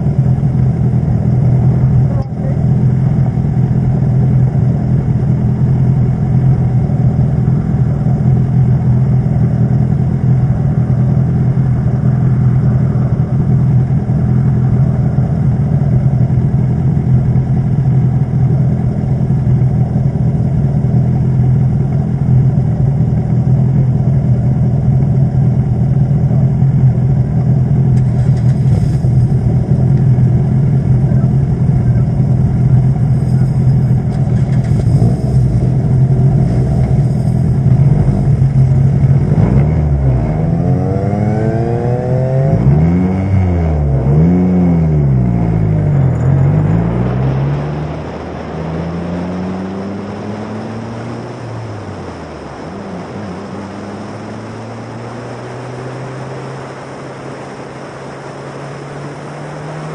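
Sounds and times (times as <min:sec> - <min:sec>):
race car engine idling: 0:00.0 - 0:41.0.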